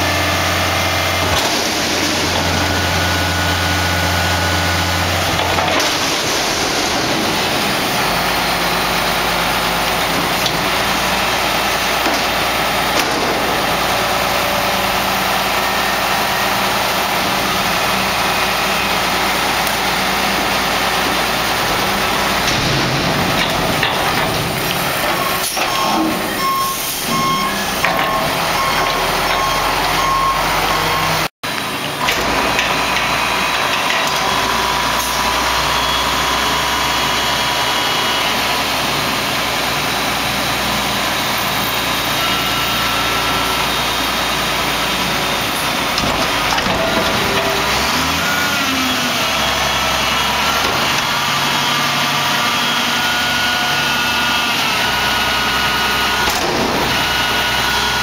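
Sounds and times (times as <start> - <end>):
diesel engine running: 0.0 - 58.0
hydraulics whining: 0.0 - 58.0
back-up alarm beeping: 25.2 - 31.3.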